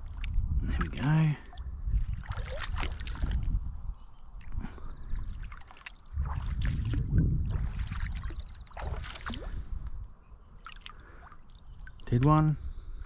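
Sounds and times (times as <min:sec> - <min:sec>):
low microphone rumble: 0:00.0 - 0:05.5, 0:06.1 - 0:10.2
feet wading in water: 0:00.0 - 0:13.0
muddy water splashing: 0:00.0 - 0:13.0.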